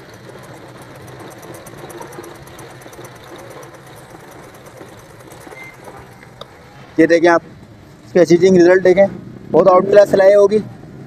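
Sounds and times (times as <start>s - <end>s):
sewing machine clatter: 0.0s - 6.5s.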